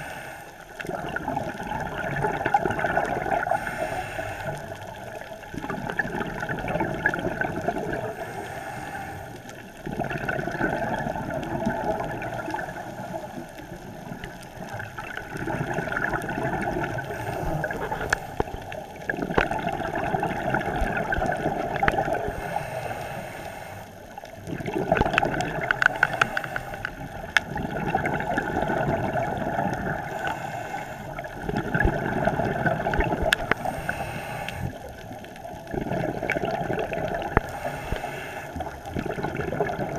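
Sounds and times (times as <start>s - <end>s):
diver breathing through regulator: 0.0s - 0.7s, 3.4s - 5.0s, 8.0s - 9.7s, 16.6s - 18.8s, 22.1s - 24.2s, 25.6s - 27.2s, 29.9s - 31.4s, 32.7s - 35.1s, 36.5s - 38.9s
rush of bubbles: 0.7s - 8.4s, 9.5s - 22.6s, 24.2s - 39.9s.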